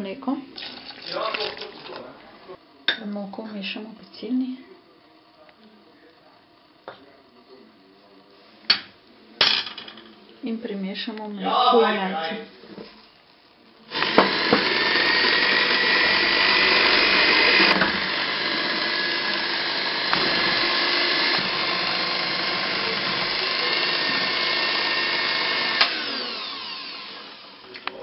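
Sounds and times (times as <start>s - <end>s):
electric hand mixer whining: 13.9s - 27.7s
sharp clicks of mixer beaters: 24.0s - 27.1s.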